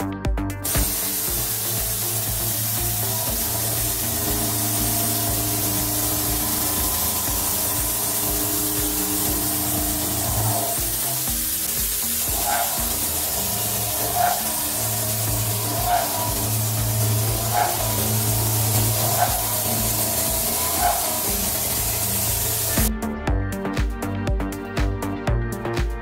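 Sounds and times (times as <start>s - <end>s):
background music with a beat: 0.0s - 26.0s
machine cutting hiss: 0.6s - 22.9s
high spindle whine: 0.7s - 22.9s.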